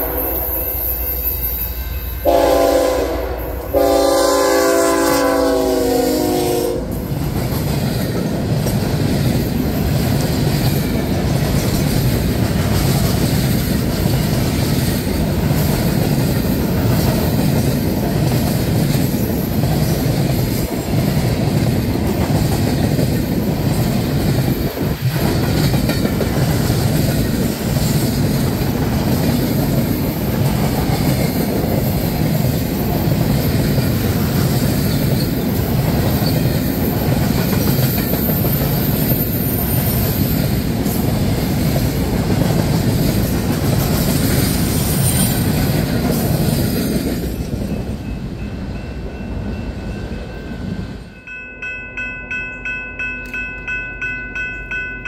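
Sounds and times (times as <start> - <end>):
freight train rolling past: 0.0 - 55.0
locomotive air horn: 2.2 - 7.0.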